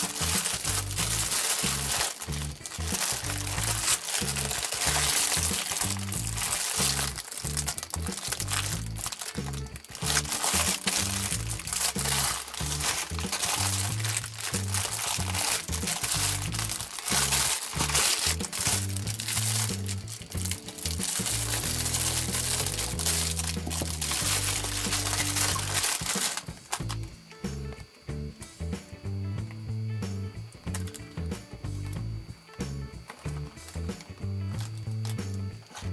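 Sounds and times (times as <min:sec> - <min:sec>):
plastic wrapping crinkling: 0:00.0 - 0:27.0, 0:30.7 - 0:31.0, 0:34.6 - 0:35.9
background music with bass: 0:00.0 - 0:35.9.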